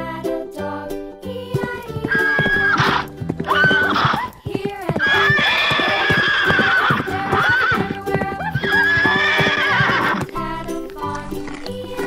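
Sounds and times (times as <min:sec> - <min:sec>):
hooves galloping: 0:01.5 - 0:12.0
horse whinnies: 0:02.1 - 0:10.3.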